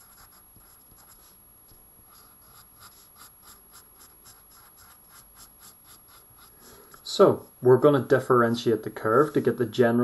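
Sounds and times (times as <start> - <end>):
pen scratching on paper: 0.0 - 1.4, 2.0 - 7.2, 9.0 - 9.6.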